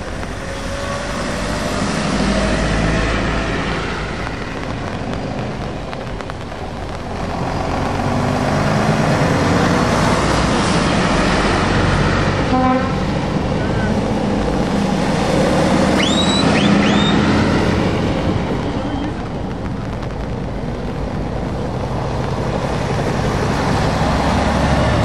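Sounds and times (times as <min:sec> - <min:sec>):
lorry diesel engine passing: 0:00.0 - 0:04.6, 0:07.1 - 0:18.8, 0:21.8 - 0:25.0
tyres hissing on wet road: 0:00.0 - 0:25.0.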